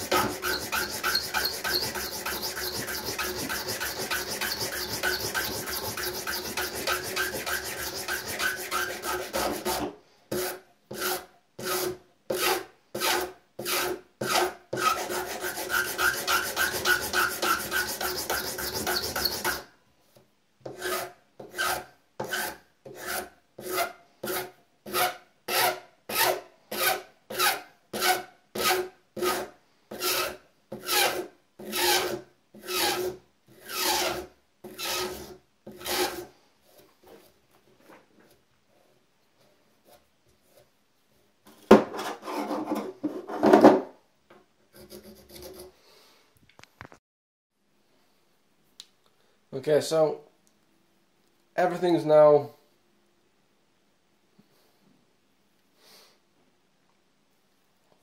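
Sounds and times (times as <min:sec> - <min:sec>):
hand file rasping: 0:00.0 - 0:19.7, 0:20.7 - 0:36.3, 0:44.8 - 0:45.7.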